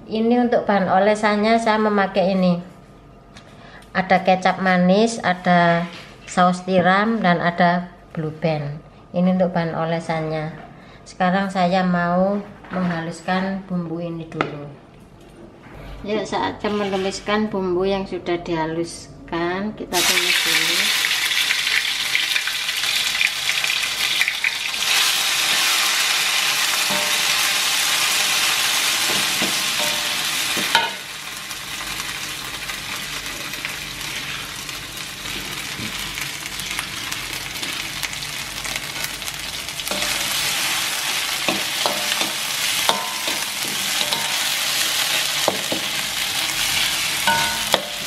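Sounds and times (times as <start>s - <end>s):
spice paste sizzling in oil: 20.0s - 48.0s.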